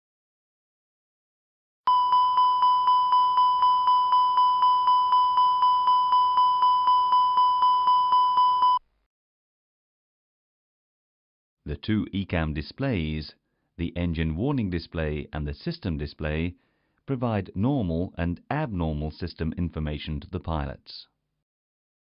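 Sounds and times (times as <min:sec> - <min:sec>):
repeating warning chime: 0:01.9 - 0:08.8.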